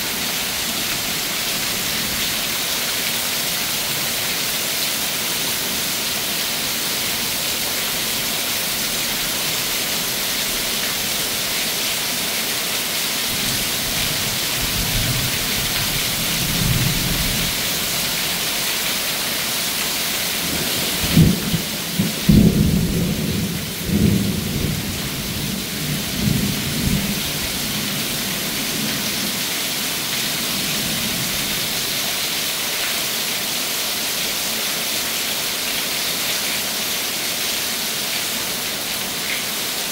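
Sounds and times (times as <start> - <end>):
heavy rain pouring off a roof: 0.0 - 39.9
thunder rumbling and cracking: 21.0 - 27.3.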